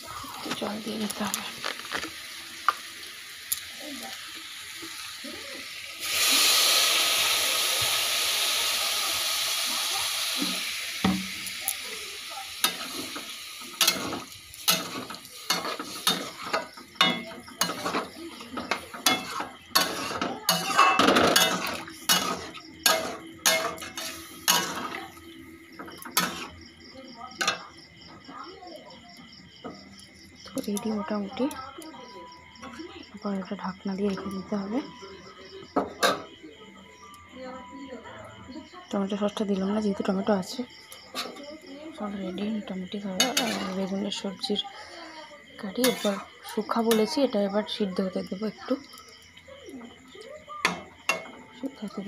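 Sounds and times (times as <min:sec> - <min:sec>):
water sizzling in hot pan: 0:00.0 - 0:27.7, 0:39.7 - 0:52.0
crickets chirping: 0:00.0 - 0:52.0
metal ladle scraping steel pan: 0:13.8 - 0:25.0, 0:45.8 - 0:46.2.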